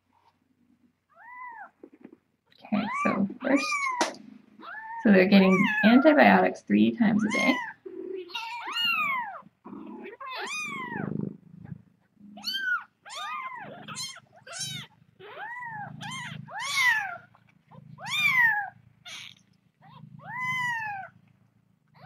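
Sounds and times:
kittens mewing: 0:02.7 - 0:06.2, 0:07.2 - 0:21.2.

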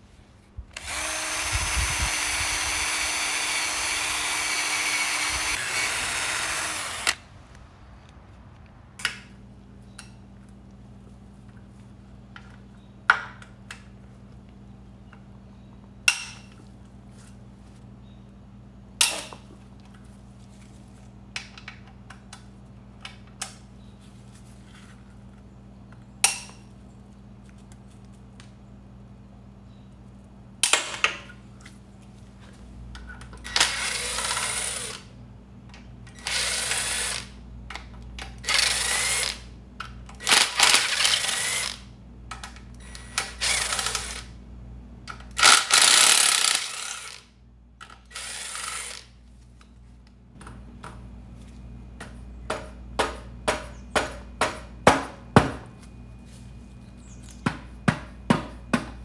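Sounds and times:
cordless driver spinning bolts: 0:00.8 - 0:07.2, 0:40.2 - 0:41.8, 0:42.8 - 0:44.3, 0:45.4 - 0:47.2.

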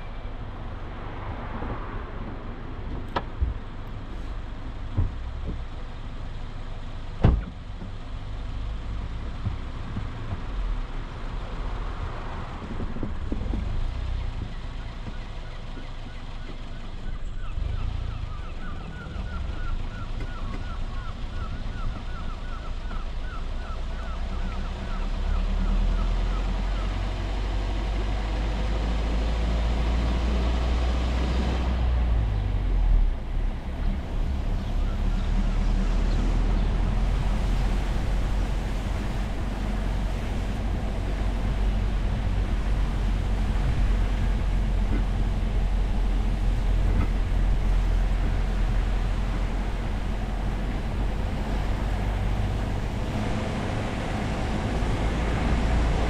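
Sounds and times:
car on slushy road: 0:00.0 - 0:56.0.

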